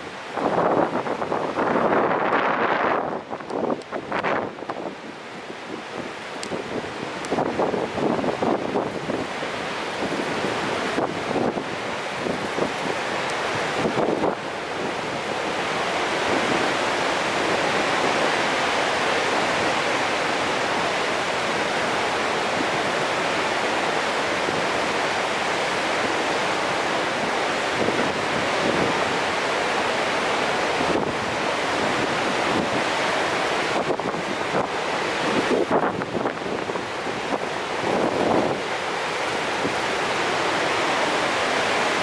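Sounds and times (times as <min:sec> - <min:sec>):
waterfall rushing: 0:00.0 - 0:42.0.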